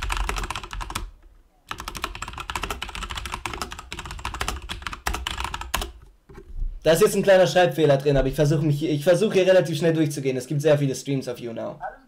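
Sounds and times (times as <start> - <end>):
fast keyboard typing: 0.0 - 1.1, 1.7 - 6.1.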